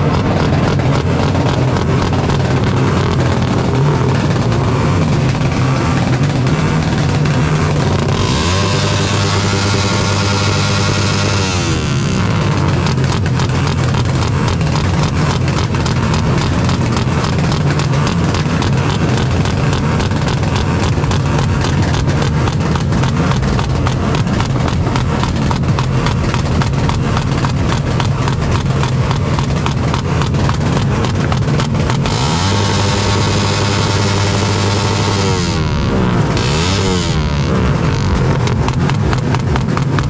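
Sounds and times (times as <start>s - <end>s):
engine revving hard: 0.0s - 40.0s
exhaust pops crackling: 0.0s - 40.0s.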